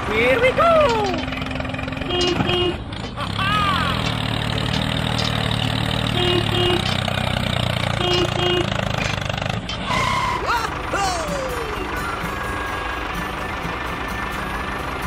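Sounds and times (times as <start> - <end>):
tractor engine running: 0.0 - 15.0
whistling glides: 9.8 - 10.5.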